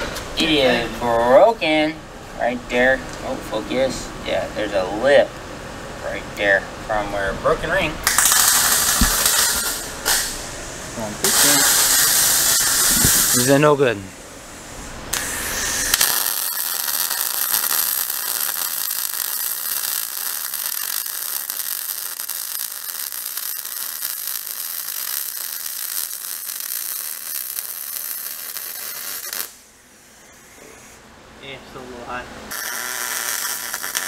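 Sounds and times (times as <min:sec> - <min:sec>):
welding arc crackling: 0:08.0 - 0:13.8, 0:15.1 - 0:29.6, 0:32.5 - 0:34.0.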